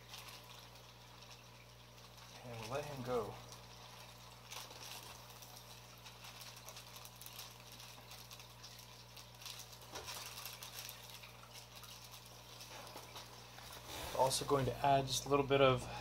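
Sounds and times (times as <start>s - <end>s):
aquarium bubbles bubbling: 0.0s - 16.0s
steady low hum: 0.0s - 16.0s.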